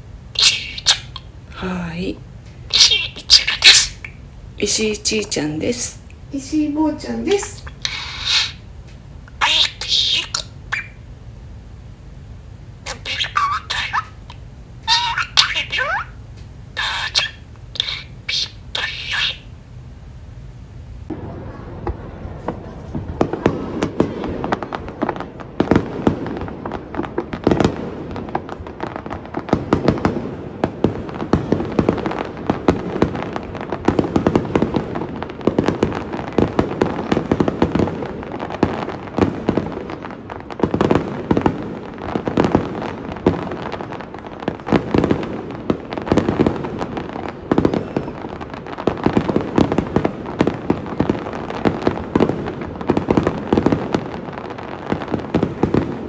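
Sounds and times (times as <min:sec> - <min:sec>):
fireworks popping and banging: 0:21.1 - 0:56.0.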